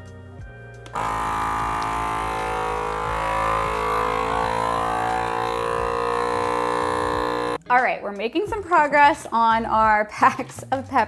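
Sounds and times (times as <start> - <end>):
vacuum sealer pump running: 0.9 - 7.6.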